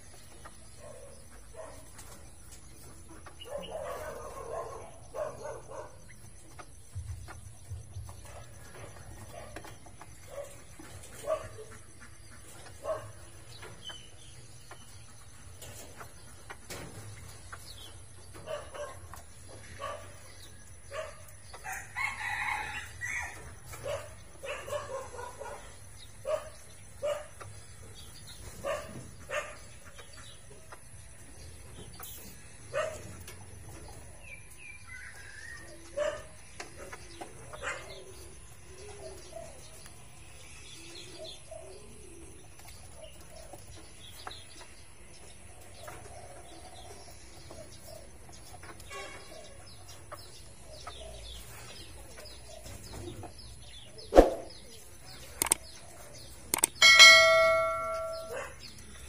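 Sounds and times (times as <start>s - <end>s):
chickens clucking: 0.0s - 59.0s
sharp clicks and knocks: 55.4s - 55.7s, 56.5s - 56.9s.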